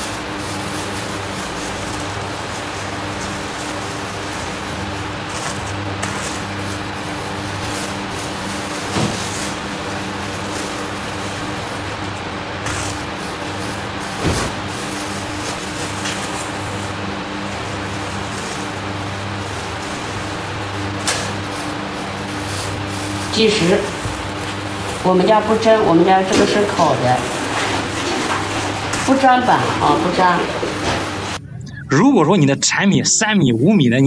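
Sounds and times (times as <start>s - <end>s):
low machine hum: 0.0s - 34.0s
plastic bag crinkles and knocks: 7.5s - 11.9s, 12.6s - 16.6s.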